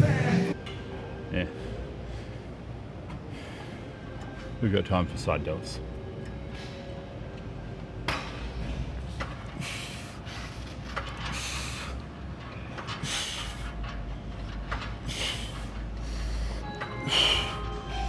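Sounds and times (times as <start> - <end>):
hissing breaths: 9.6 - 12.0, 12.9 - 13.8, 15.0 - 18.0.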